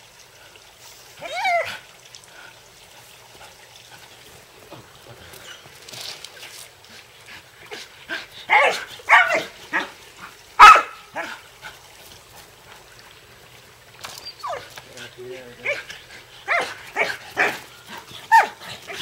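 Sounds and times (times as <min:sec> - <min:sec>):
dog play barking: 0:08.5 - 0:09.9, 0:10.6 - 0:11.4, 0:16.5 - 0:17.7.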